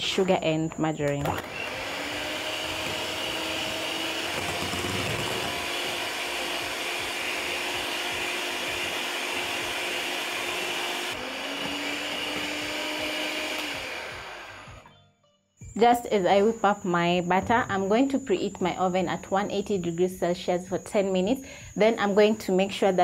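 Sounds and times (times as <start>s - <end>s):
electric hand mixer whining: 1.3s - 14.9s.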